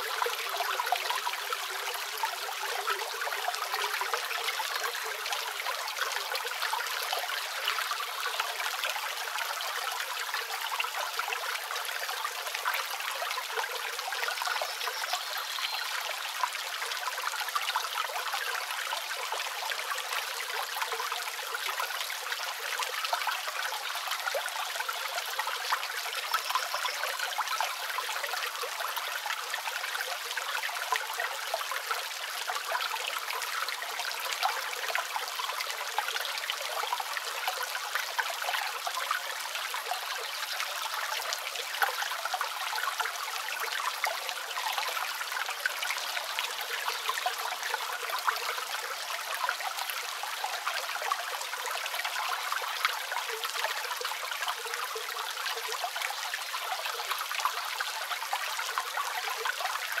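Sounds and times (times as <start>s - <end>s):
small waterfall splashing: 0.0s - 60.0s.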